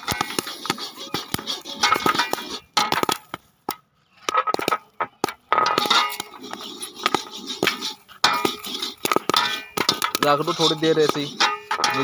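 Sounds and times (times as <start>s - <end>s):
corn kernels popping: 0.0s - 12.0s.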